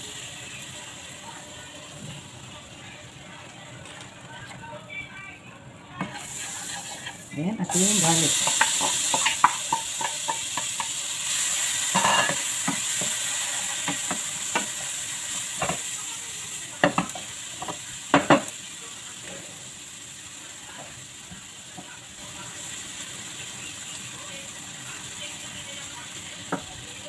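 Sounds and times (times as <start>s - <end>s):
garlic sizzling in butter: 0.0s - 3.4s, 5.9s - 27.0s
wooden spatula knocking on a pan: 16.8s - 18.5s.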